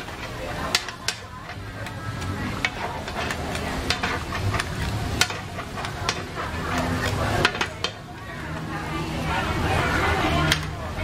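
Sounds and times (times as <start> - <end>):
spatula scraping a metal pan: 0.0 - 8.2
food sizzling: 0.0 - 11.0.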